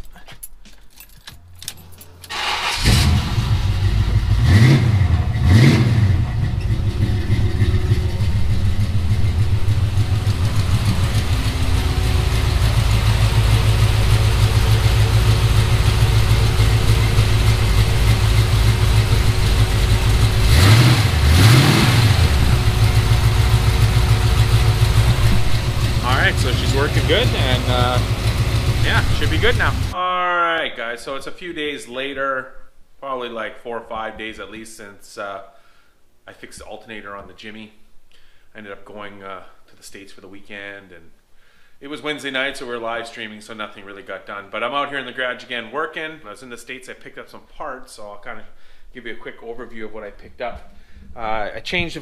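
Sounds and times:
car engine starting and idling: 0:01.4 - 0:30.0
engine revving: 0:02.3 - 0:30.0.

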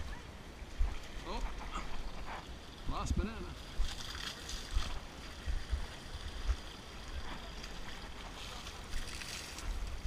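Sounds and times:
wind buffeting the microphone: 0:00.0 - 0:10.0
water splashing: 0:03.5 - 0:10.0.

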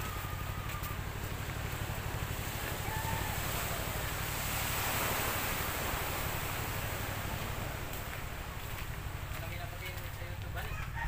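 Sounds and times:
wind and surf rushing: 0:00.0 - 0:09.8
wind rumbling on microphone: 0:00.0 - 0:11.0.

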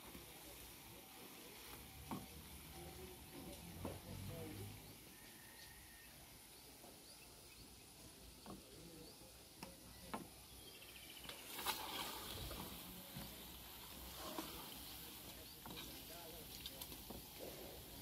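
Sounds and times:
pastries sizzling in oil: 0:00.0 - 0:07.0, 0:11.2 - 0:18.0.

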